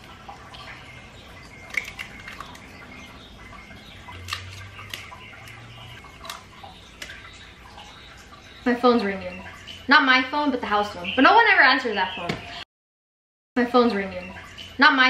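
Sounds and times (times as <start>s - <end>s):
eggshells cracking: 1.4s - 2.9s, 4.2s - 7.2s.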